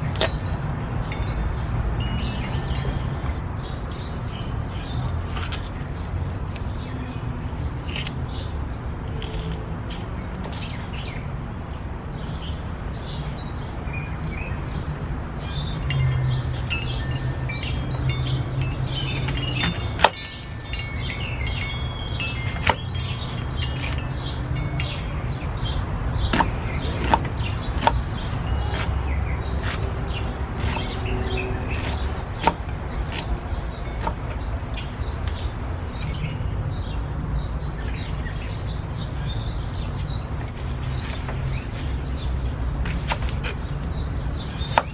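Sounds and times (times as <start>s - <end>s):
high tinkling tones: 1.0s - 3.5s, 15.8s - 25.9s.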